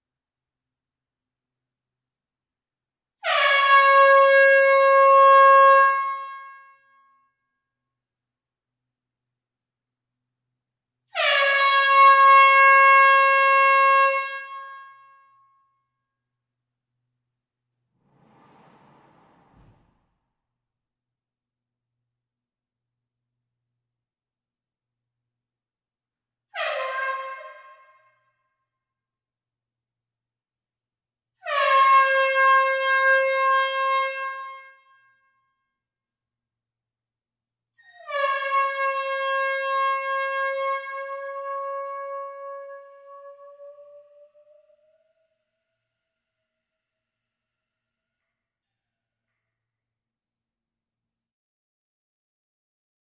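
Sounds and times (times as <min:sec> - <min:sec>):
loud horn-like note: 0:18.0 - 0:20.2.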